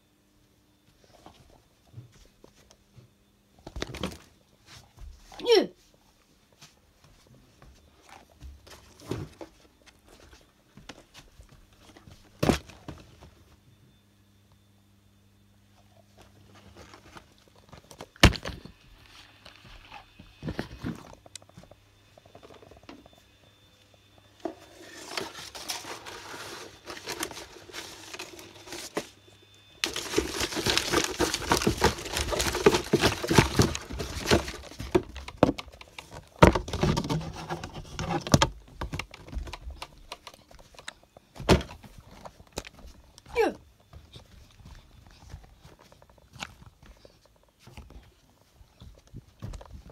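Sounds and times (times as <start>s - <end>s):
cardboard packaging rustling: 24.4s - 43.0s.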